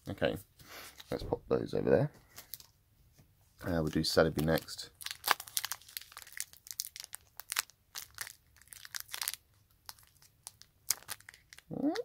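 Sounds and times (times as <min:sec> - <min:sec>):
foil wrapper crinkling: 0:04.4 - 0:11.7.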